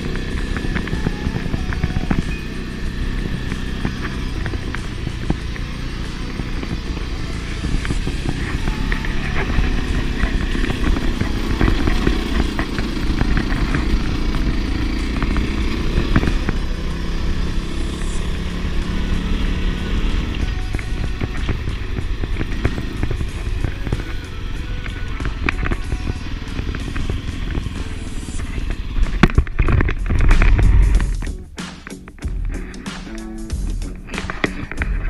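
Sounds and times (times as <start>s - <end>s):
motorcycle engine under throttle: 0.0s - 35.0s.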